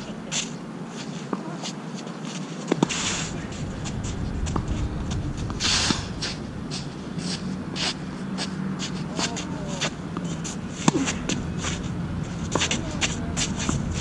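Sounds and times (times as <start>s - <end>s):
wind rumble on microphone: 2.9s - 14.0s
racket striking ball: 10.2s - 13.9s.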